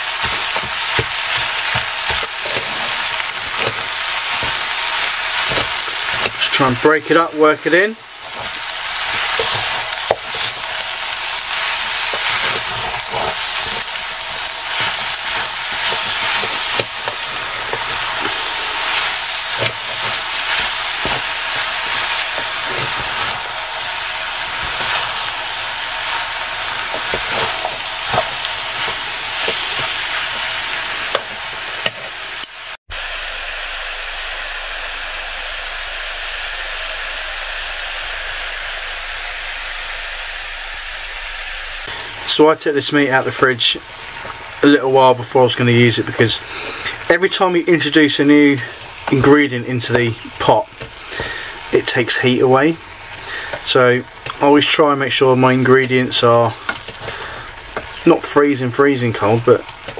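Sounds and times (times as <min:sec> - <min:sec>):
wooden spoon scraping a pot: 0:00.0 - 0:32.2
meat sizzling in a pot: 0:00.0 - 0:59.9.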